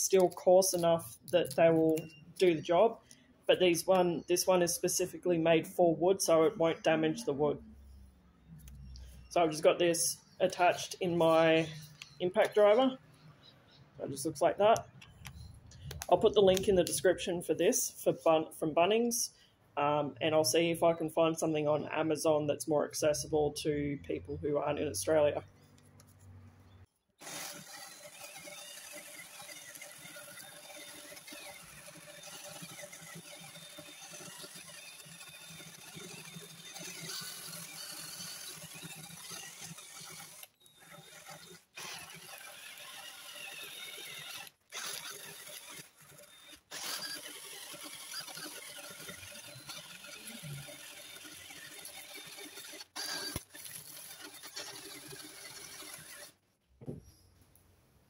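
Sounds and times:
impact driver motor whirring: 0:27.2 - 0:56.4.

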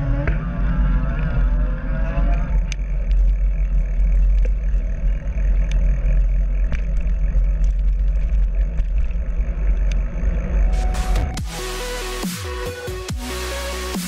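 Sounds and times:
bicycle clicks and rattles: 0:02.2 - 0:10.6.

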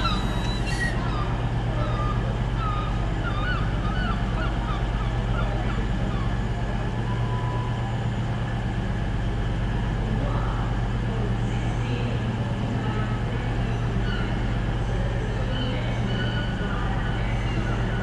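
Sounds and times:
short bird calls: 0:00.0 - 0:06.4
diesel train engine idling: 0:00.0 - 0:18.0.

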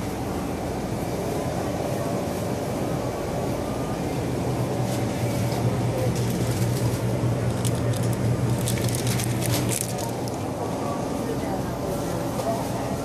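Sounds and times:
low hum of drinks cooler: 0:00.0 - 0:13.0
plastic bottle crackling: 0:07.5 - 0:10.4.

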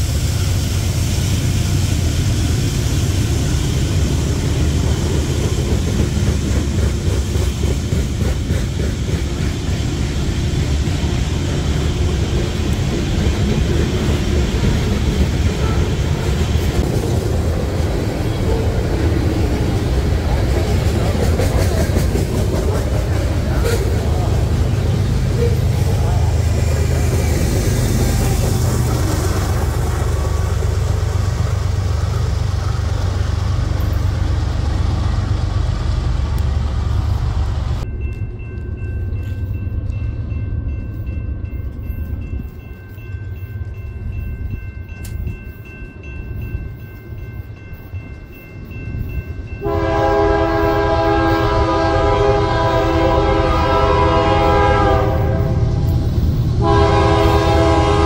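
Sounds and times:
train wheels rumbling on rail: 0:00.0 - 0:58.0
locomotive horn: 0:15.6 - 0:16.4, 0:49.6 - 0:56.0, 0:56.6 - 0:58.0.

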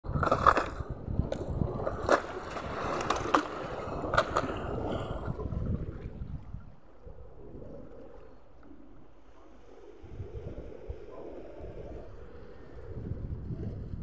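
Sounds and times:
wind rumble: 0:00.0 - 0:14.0
sea water washing among rocks: 0:00.1 - 0:06.8.

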